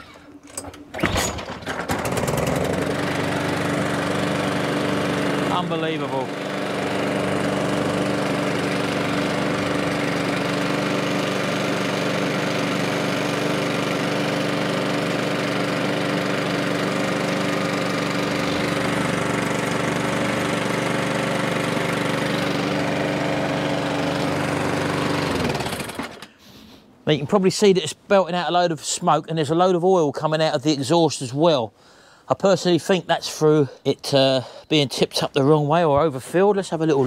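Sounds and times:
lawnmower engine running: 0.0 - 26.3.

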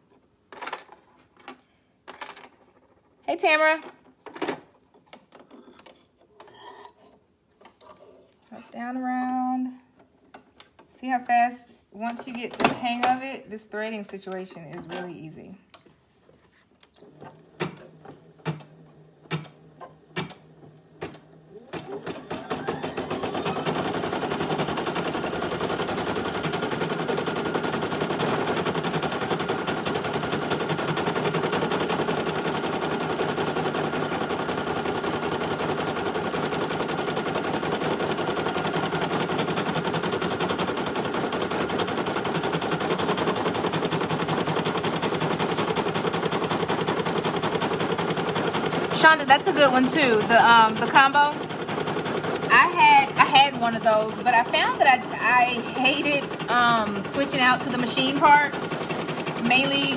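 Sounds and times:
embroidery machine stitching rattle: 17.0 - 59.9.

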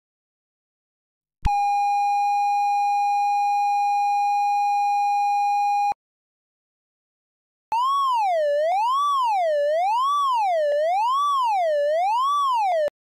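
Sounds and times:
synth oscillator tone: 7.8 - 12.9.

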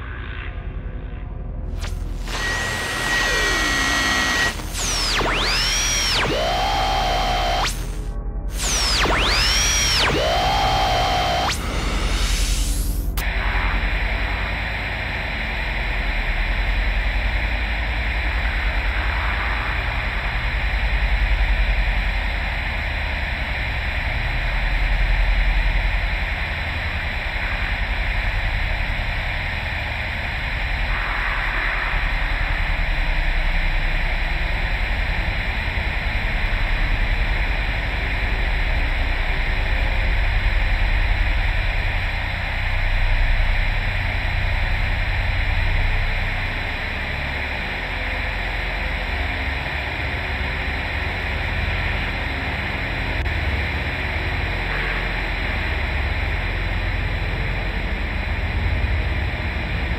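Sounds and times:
deep rumbling drone: 0.0 - 59.9
static hiss: 1.8 - 8.0.

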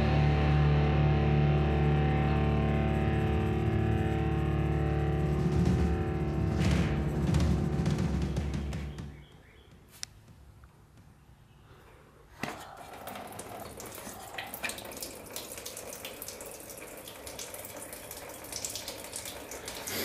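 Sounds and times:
coolant trickling out: 12.6 - 20.0.

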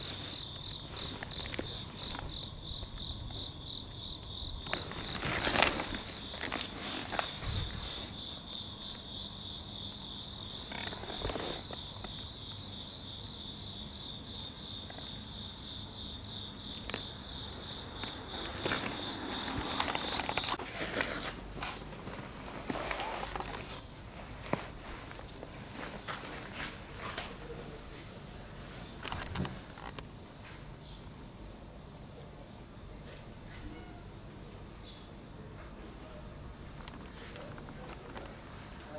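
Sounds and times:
faint outdoor background noise: 0.0 - 38.9
insects trilling: 0.0 - 38.9
high-pitched insect trill: 29.0 - 38.9.

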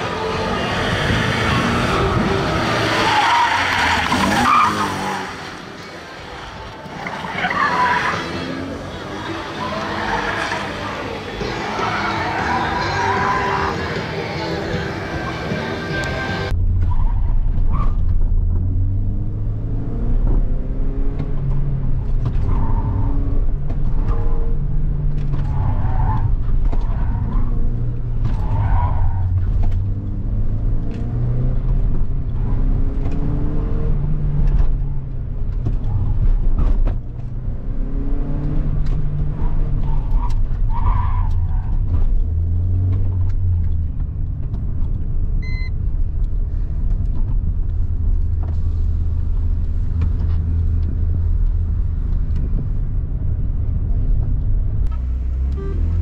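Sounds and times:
car engine revving: 0.0 - 56.0
tyres squealing: 0.3 - 6.0, 6.9 - 17.1.

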